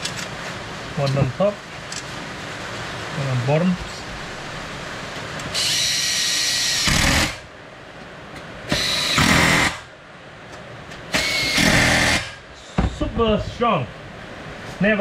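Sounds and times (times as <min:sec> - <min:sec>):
power drill-driver running: 0:05.6 - 0:07.4, 0:08.7 - 0:09.8, 0:11.2 - 0:12.3.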